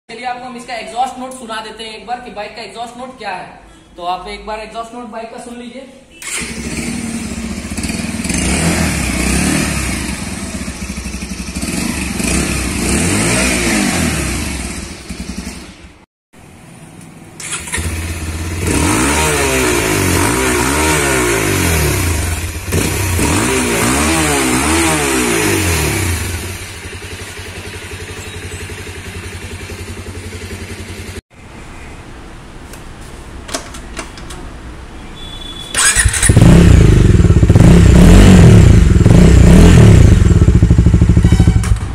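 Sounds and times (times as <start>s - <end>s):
motorcycle engine revving: 6.2s - 16.1s, 17.4s - 31.2s, 35.7s - 41.9s.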